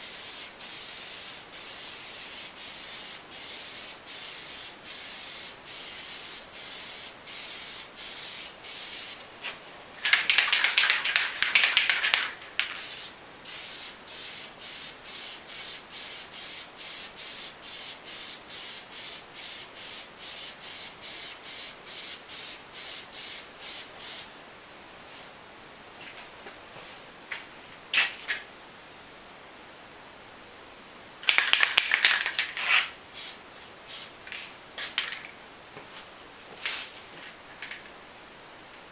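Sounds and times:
aerosol can spraying bursts: 0:00.0 - 0:24.3, 0:31.2 - 0:34.1.

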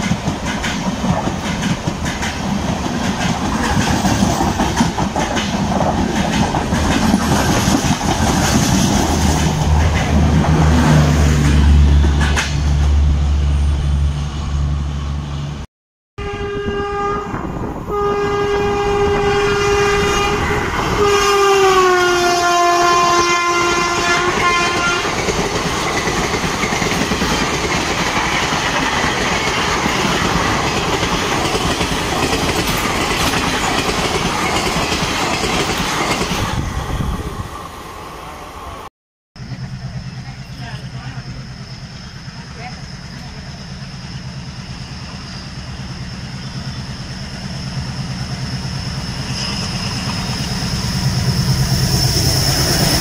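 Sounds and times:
train coaches rushing past: 0:00.0 - 0:15.6, 0:16.7 - 0:53.0
locomotive multi-tone horn: 0:16.2 - 0:25.2.

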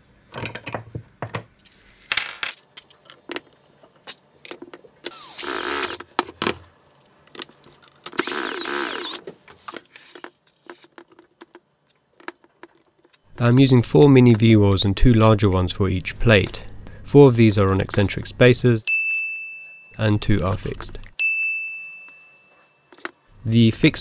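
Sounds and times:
cordless drill running: 0:05.1 - 0:06.0, 0:08.2 - 0:09.2.

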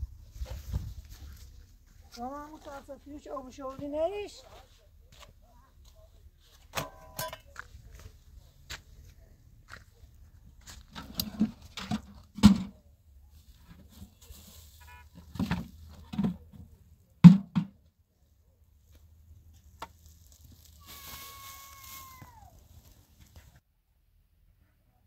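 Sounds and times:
short pitched call: 0:20.8 - 0:22.6.

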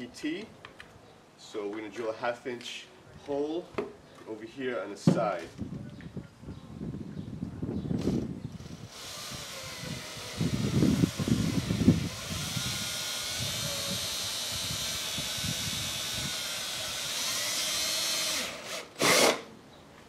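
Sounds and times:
cordless drill whining: 0:08.0 - 0:19.5.

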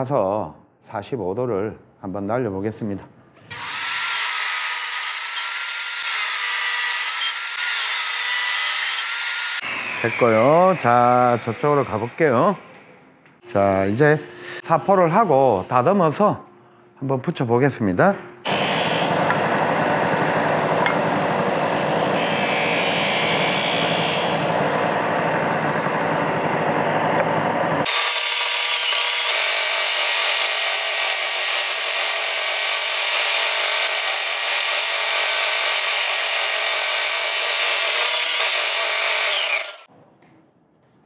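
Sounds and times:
sander motor hum: 0:18.5 - 0:39.9.

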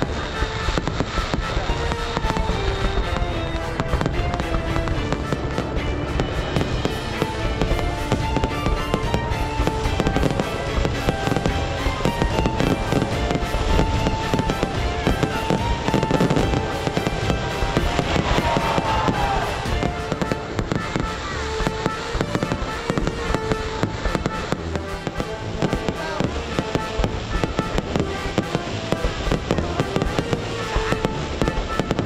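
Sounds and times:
fireworks crackling and banging: 0:00.0 - 0:32.0
music playing: 0:00.0 - 0:32.0.

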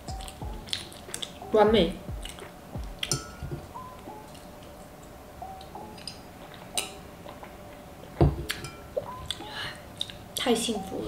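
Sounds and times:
faint chewing: 0:00.1 - 0:01.4, 0:02.2 - 0:03.2, 0:06.0 - 0:10.2
wet mouth clicks: 0:02.3 - 0:03.1.

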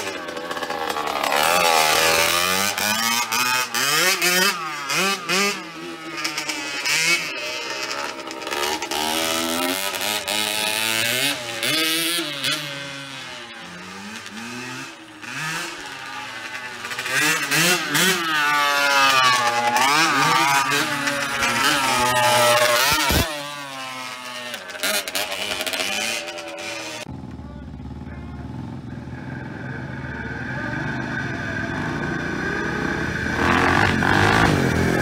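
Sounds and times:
dirt bike engines revving: 0:00.0 - 0:35.0.

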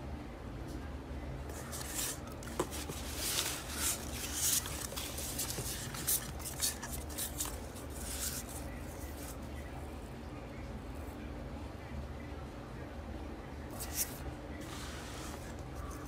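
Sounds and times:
packing peanuts rustling: 0:01.6 - 0:09.2.

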